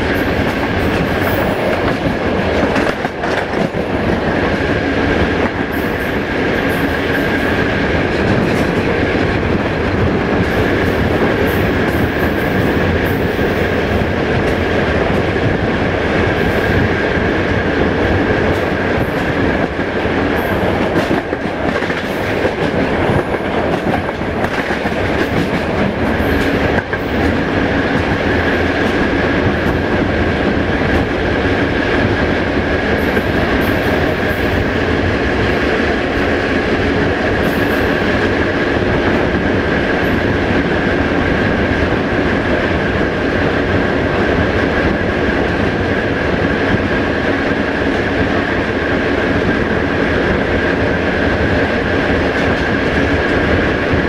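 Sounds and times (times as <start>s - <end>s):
rail joint clacks: 0.0s - 54.0s
train wheels rumbling on rails: 0.0s - 54.0s.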